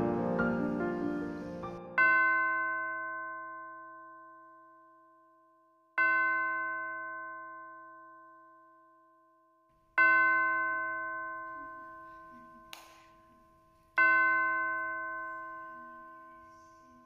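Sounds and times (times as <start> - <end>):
bell ringing: 10.0 - 17.0.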